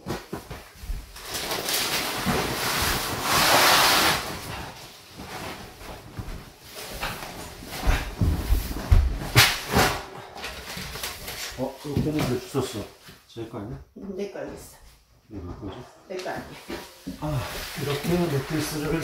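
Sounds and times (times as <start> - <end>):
vinyl mattress rustling scrape: 0.6 - 10.0, 16.6 - 19.0
footsteps thumping on plywood: 6.2 - 9.6.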